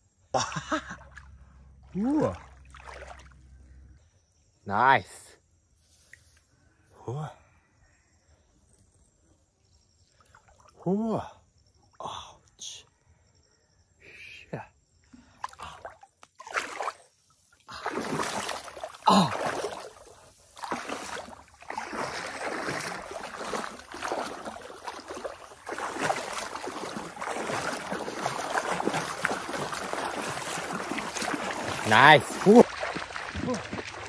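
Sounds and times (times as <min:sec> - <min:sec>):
water splashing around wading person: 0:01.0 - 0:03.6, 0:15.4 - 0:34.0.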